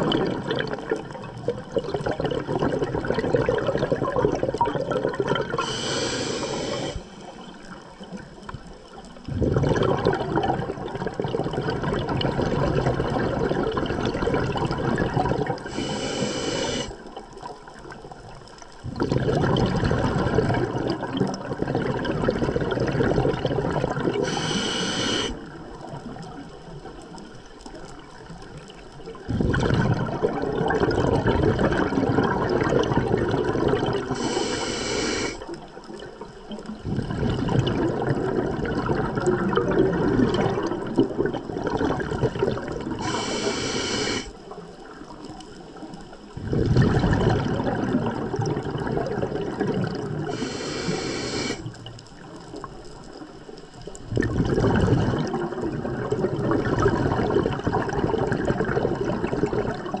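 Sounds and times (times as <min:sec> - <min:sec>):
bubbling exhalation underwater: 0:00.0 - 0:07.0, 0:09.2 - 0:17.1, 0:18.8 - 0:26.4, 0:29.2 - 0:35.4, 0:36.7 - 0:44.3, 0:46.4 - 0:51.9, 0:54.0 - 1:00.0
regulator inhalation hiss: 0:05.6 - 0:07.4, 0:15.7 - 0:17.0, 0:24.2 - 0:25.4, 0:34.1 - 0:35.4, 0:43.0 - 0:44.3, 0:50.3 - 0:51.7.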